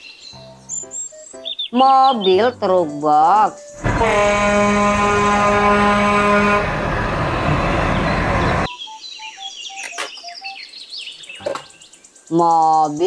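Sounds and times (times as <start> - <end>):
truck engine and road noise: 3.7 - 8.7
truck air horn: 3.8 - 8.7.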